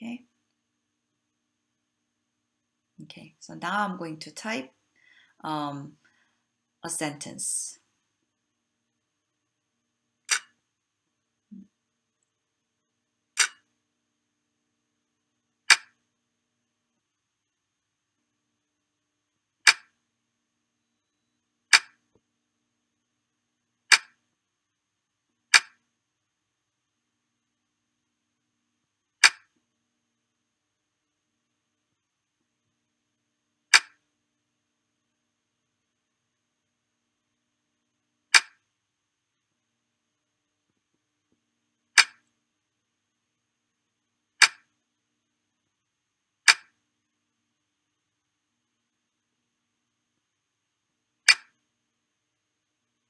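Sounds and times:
mouse click sound: 0:10.3 - 0:10.5, 0:13.4 - 0:13.6, 0:15.7 - 0:16.0, 0:25.5 - 0:25.8, 0:29.2 - 0:29.5, 0:33.7 - 0:34.0, 0:38.3 - 0:38.6, 0:46.5 - 0:46.7, 0:51.3 - 0:51.5
sharp short computer clicks: 0:10.3 - 0:10.5.

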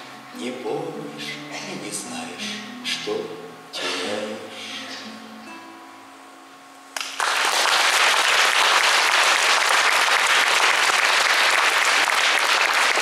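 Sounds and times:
acoustic guitar chord: 0:00.0 - 0:06.4
audience applause: 0:07.0 - 0:13.0.

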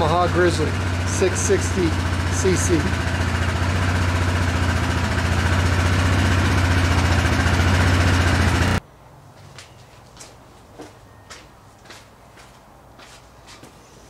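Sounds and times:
engine idling: 0:00.0 - 0:08.8.

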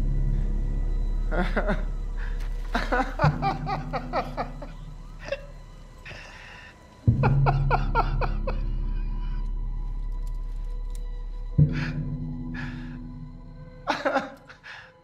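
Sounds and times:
man laughing uncontrollably: 0:01.3 - 0:01.9, 0:02.6 - 0:05.5, 0:07.2 - 0:08.7, 0:13.9 - 0:14.5.

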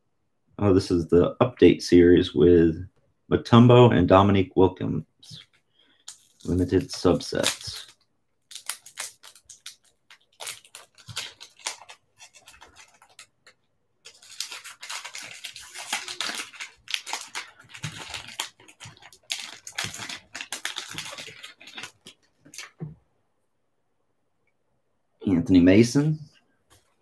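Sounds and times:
plastic wrapper crinkling and tearing: 0:05.3 - 0:22.8.

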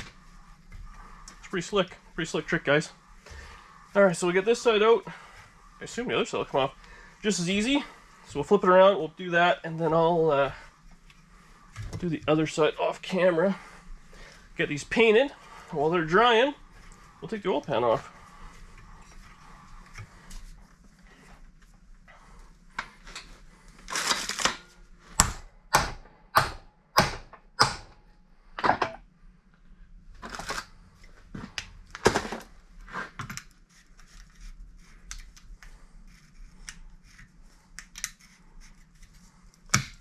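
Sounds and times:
sharp metal strikes: 0:25.2 - 0:27.9.

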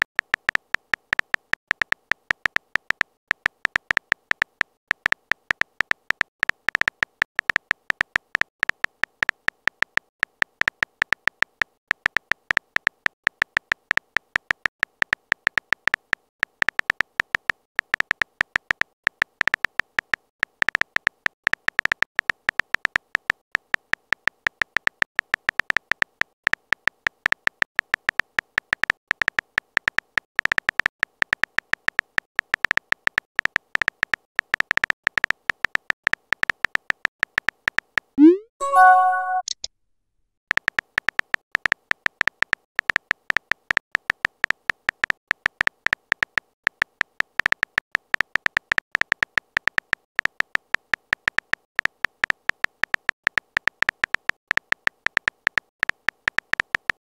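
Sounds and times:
phone keyboard typing beeps: 0:38.2 - 0:39.7.

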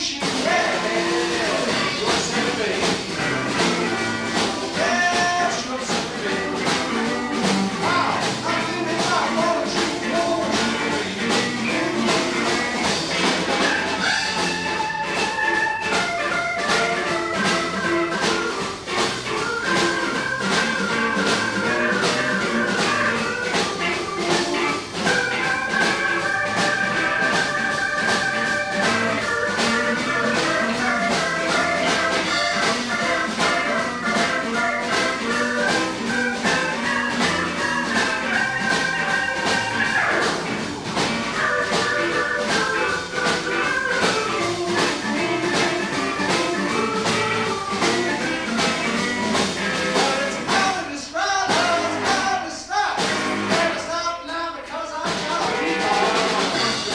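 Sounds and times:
electric bass: 0:00.0 - 0:50.9, 0:51.5 - 0:52.2, 0:53.0 - 0:53.9, 0:55.1 - 0:56.9
drums: 0:00.0 - 0:56.9
electric guitar: 0:00.0 - 0:56.9
keyboard: 0:00.0 - 0:56.9.

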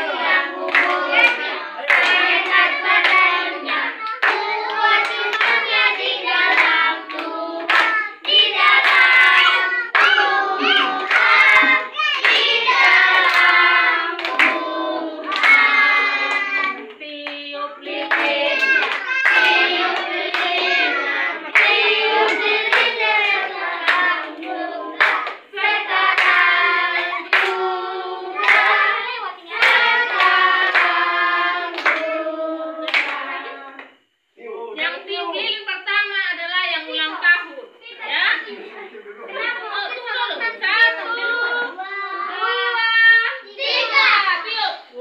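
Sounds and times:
group singing a birthday song: 0:00.0 - 0:45.0
people clapping in time: 0:00.2 - 0:14.7, 0:15.3 - 0:17.4, 0:18.0 - 0:21.0, 0:26.1 - 0:27.6, 0:29.6 - 0:32.1, 0:32.8 - 0:33.3.

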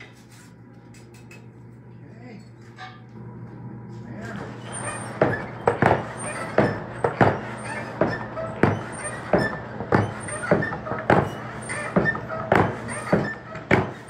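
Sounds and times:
hand bellows knocking and creaking: 0:04.4 - 0:14.0.

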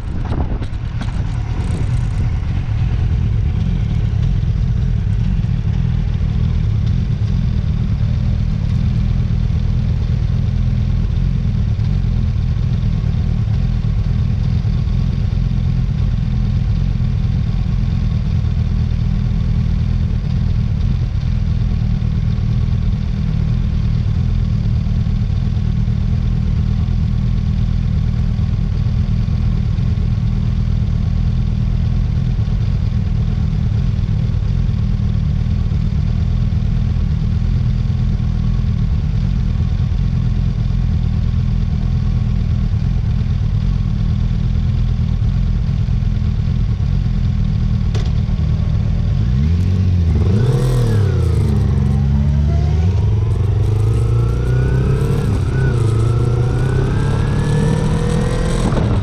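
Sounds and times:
wind rumble on microphone: 0:00.0 - 0:07.8, 0:50.2 - 0:59.0
motorcycle engine: 0:00.0 - 0:59.0.

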